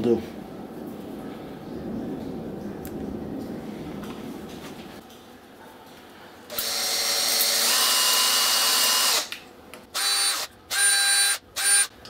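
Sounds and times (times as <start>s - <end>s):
cordless drill drilling plastic: 6.5s - 9.3s, 10.0s - 11.9s.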